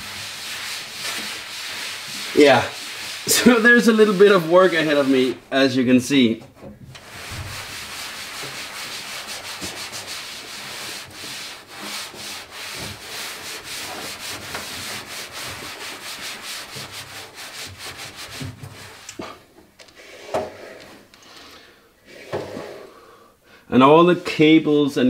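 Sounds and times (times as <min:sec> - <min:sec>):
cloth scrubbing a floor: 0:00.0 - 0:05.6, 0:07.0 - 0:21.1.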